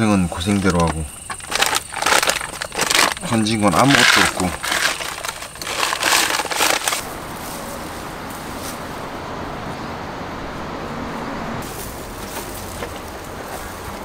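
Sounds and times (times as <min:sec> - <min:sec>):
rumbling background noise: 0:00.0 - 0:14.0
plastic pouch crinkling: 0:00.6 - 0:07.0.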